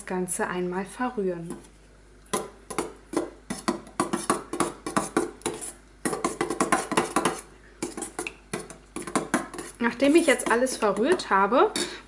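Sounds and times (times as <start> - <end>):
spoon clinking and scraping bowl: 2.4 - 12.0.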